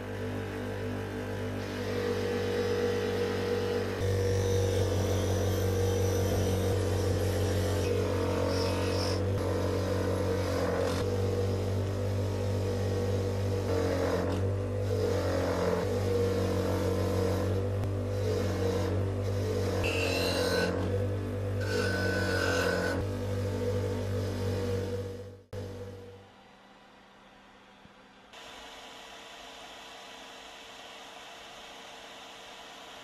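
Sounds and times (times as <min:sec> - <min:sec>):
bench grinder humming: 0:00.0 - 0:26.2.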